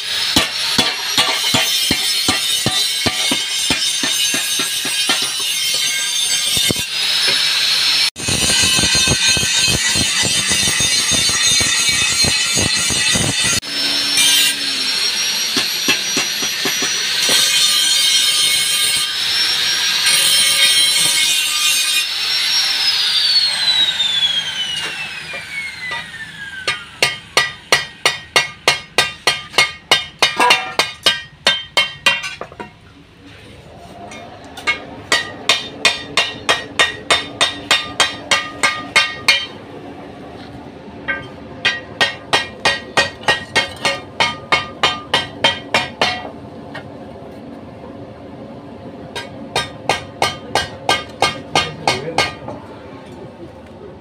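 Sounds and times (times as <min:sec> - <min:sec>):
rapid hammer blows: 0:00.1 - 0:05.4.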